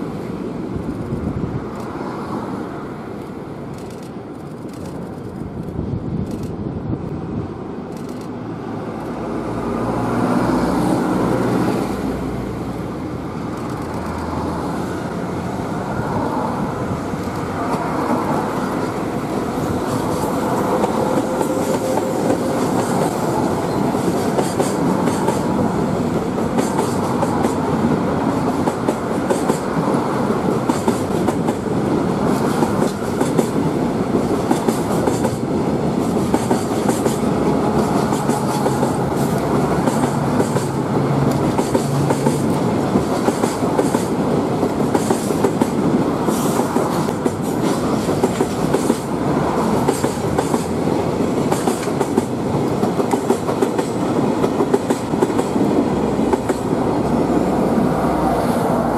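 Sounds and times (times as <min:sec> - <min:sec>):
electric locomotive hum: 0:00.0 - 0:58.9
train wheels clicking over rail joints: 0:03.2 - 0:06.6, 0:13.4 - 0:14.7, 0:19.6 - 0:56.9.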